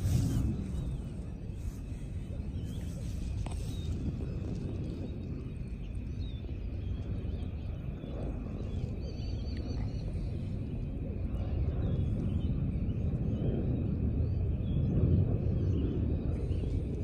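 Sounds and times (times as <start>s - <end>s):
faint bird chirps: 0.0s - 17.0s
low outdoor rumble: 0.0s - 17.0s.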